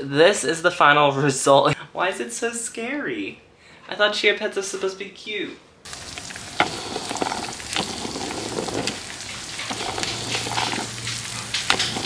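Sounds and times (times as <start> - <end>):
cheese and oil sizzling: 5.9 - 12.0.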